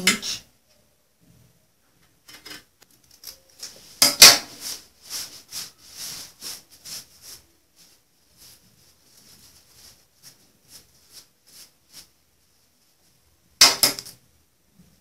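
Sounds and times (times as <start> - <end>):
fabric rustling: 3.3 - 13.4.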